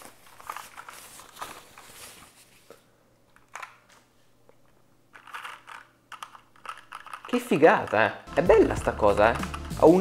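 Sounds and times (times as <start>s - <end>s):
wrapping sheet rustling: 0.0s - 2.9s.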